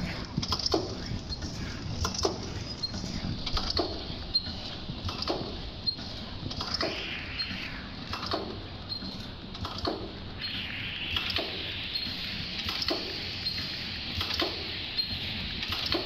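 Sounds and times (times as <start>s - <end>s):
packing machine clacks: 0.0s - 6.9s, 12.6s - 16.0s
faint machine clicks: 0.0s - 16.0s
mechanical hiss and hum: 0.0s - 16.0s.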